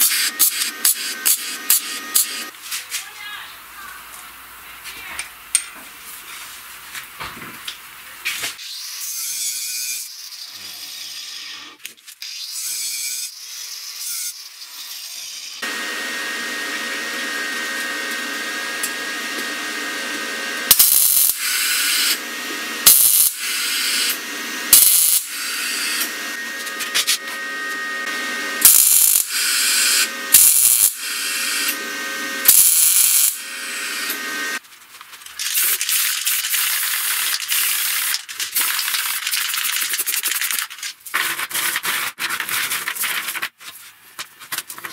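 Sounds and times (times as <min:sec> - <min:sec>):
arc welder humming: 0:00.0 - 0:02.5, 0:15.6 - 0:34.6
short loud welds: 0:20.7 - 0:22.2, 0:22.8 - 0:26.1, 0:28.6 - 0:31.0, 0:32.5 - 0:33.4
spray can hissing: 0:35.4 - 0:40.6.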